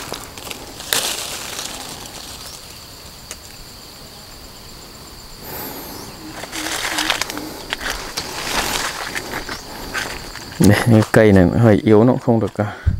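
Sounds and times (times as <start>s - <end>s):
footsteps on dry leaves: 0.0s - 2.8s, 5.5s - 11.2s
leaves rustling and twigs snapping: 0.0s - 3.7s, 5.6s - 11.4s
high insect drone: 0.0s - 12.9s.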